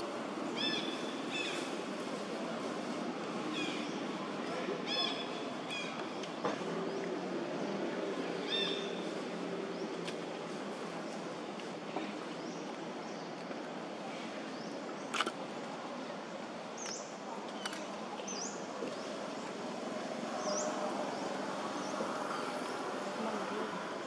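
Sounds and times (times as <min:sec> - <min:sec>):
steady background noise: 0:00.0 - 0:24.0.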